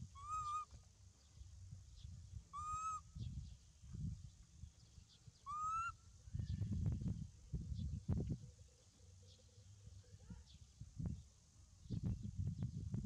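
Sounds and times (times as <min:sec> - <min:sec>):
whistle-like animal calls: 0:00.2 - 0:00.7.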